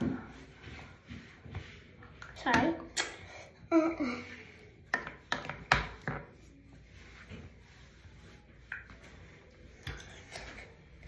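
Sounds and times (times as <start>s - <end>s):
faint rubbing: 6.3s - 9.7s.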